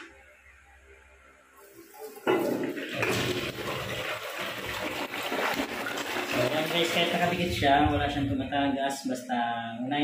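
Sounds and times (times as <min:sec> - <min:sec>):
toilet flushing: 0:01.6 - 0:08.3.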